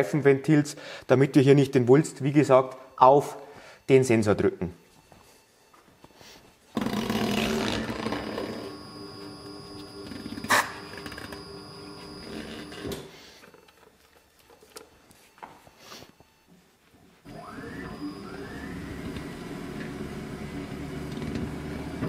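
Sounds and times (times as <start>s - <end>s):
tyre changer machine humming: 6.8s - 13.1s, 17.2s - 22.0s.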